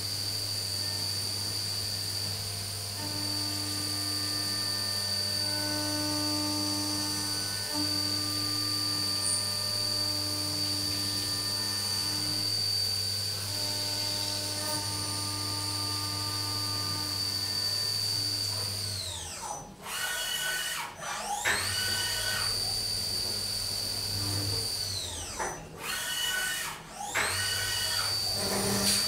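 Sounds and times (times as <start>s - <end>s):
milling spindle whine: 3.0s - 19.4s.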